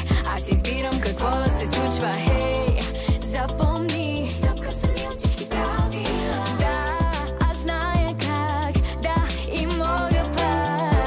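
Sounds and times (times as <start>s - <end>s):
bass line: 0.0s - 11.0s
woman singing: 0.0s - 11.0s
kick drum beat: 0.1s - 0.8s, 1.5s - 1.7s, 2.3s - 3.8s, 4.4s - 6.0s, 6.6s - 8.2s, 8.8s - 9.3s.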